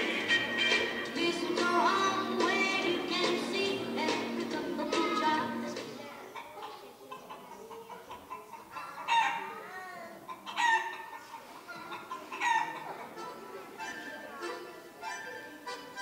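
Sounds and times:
quiet music: 0.0 - 6.0, 13.2 - 16.0
chickens clucking: 4.1 - 15.8.

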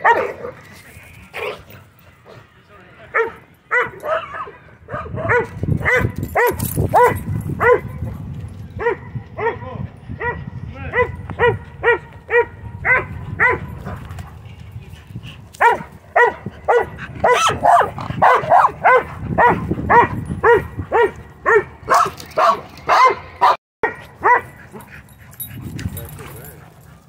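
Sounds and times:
dog barking: 0.0 - 0.5, 3.2 - 7.9, 8.8 - 9.6, 10.2 - 13.7, 15.6 - 24.6.

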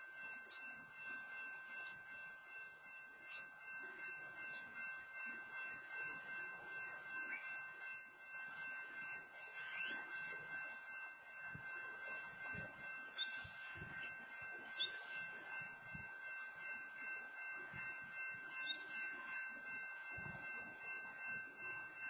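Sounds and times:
bird whistled calls: 13.1 - 13.9, 14.7 - 15.5, 18.6 - 19.4.

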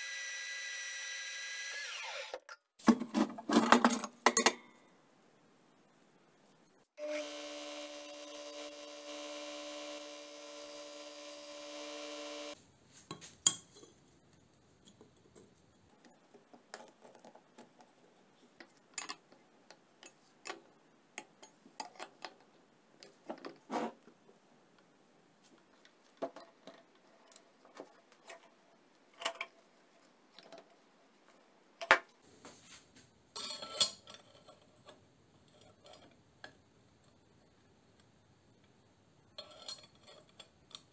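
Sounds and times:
belt grinder grinding metal: 0.0 - 2.5, 7.0 - 12.6.

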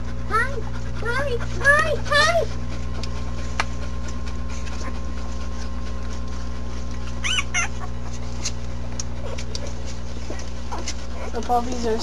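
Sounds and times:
steady low hum: 0.0 - 12.0
puppies squealing: 7.0 - 8.2.

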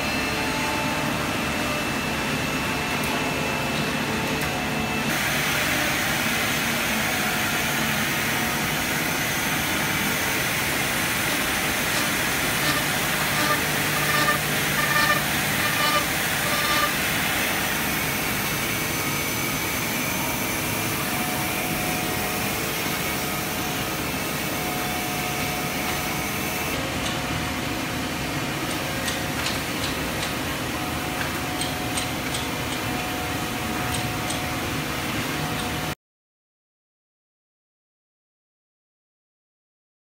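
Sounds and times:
woodworking machinery running: 0.1 - 26.7
faint steady hum: 11.3 - 17.0.

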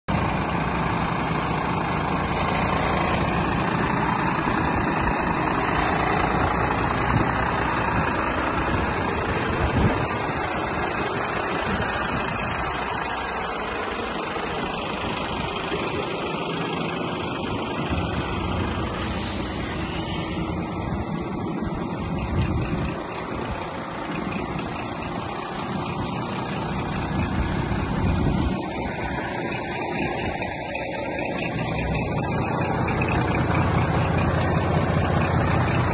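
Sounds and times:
diesel engine idling: 0.1 - 35.9
brief air hiss: 19.0 - 20.6.

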